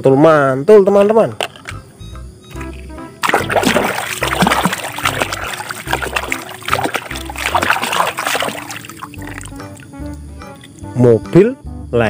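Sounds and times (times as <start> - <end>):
background music: 1.6 - 12.0
water splashing in a tub: 2.5 - 9.9.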